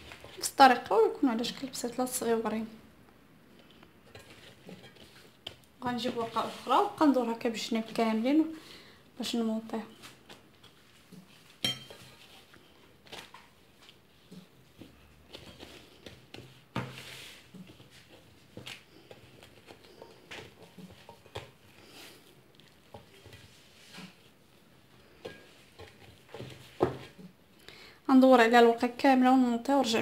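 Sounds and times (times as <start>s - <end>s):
pastry rustling: 3.7s - 8.5s, 9.2s - 27.5s.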